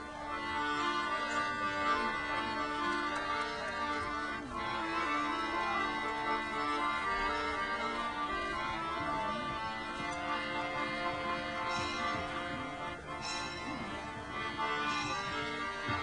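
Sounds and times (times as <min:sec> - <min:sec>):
music of sustained chords: 0:00.0 - 0:16.0.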